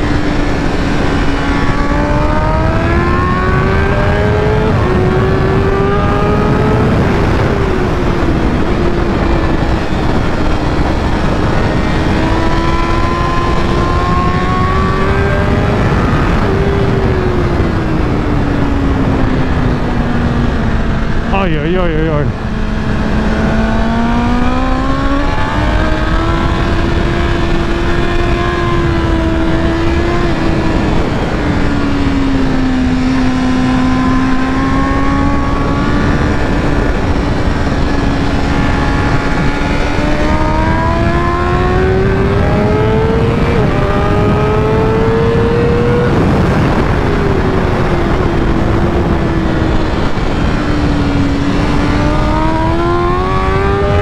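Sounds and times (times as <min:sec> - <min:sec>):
heavy wind rush: 0:00.0 - 0:54.0
motorcycle engine revving: 0:00.0 - 0:54.0.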